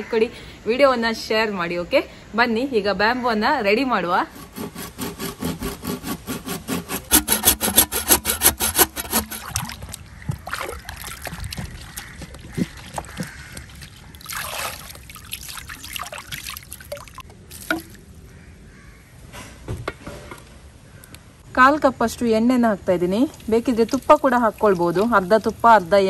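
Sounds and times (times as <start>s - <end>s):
hand saw cutting bamboo: 4.2s - 9.9s
water splashing and trickling: 8.8s - 18.2s, 23.0s - 26.0s.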